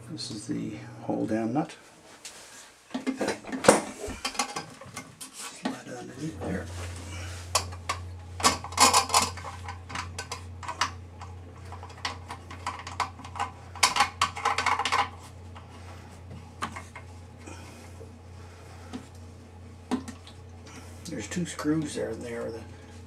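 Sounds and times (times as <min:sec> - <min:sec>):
steady low hum: 0:00.0 - 0:23.0
plastic valve clicking and rattling: 0:07.5 - 0:15.2.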